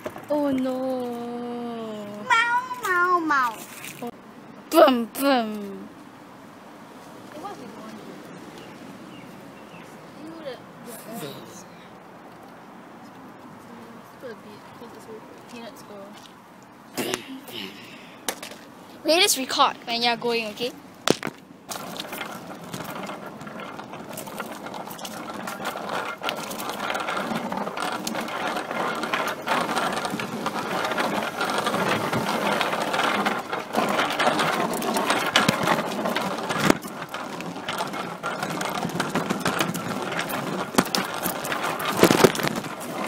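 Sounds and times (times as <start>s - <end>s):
bicycle rattling: 0.0s - 5.8s, 18.4s - 43.0s.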